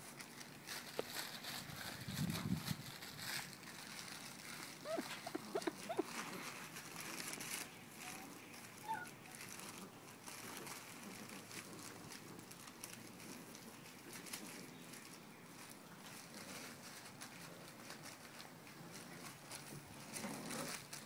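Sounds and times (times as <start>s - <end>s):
puppy paws pattering: 0.0s - 21.0s
rag rustling: 0.0s - 21.0s
puppy squeak: 4.8s - 6.1s, 8.8s - 9.1s.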